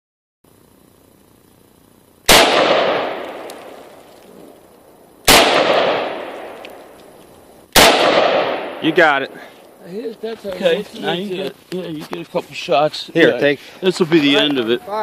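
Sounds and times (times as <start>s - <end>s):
gunshots with long echo: 2.3s - 4.0s, 5.2s - 7.0s, 7.7s - 9.5s.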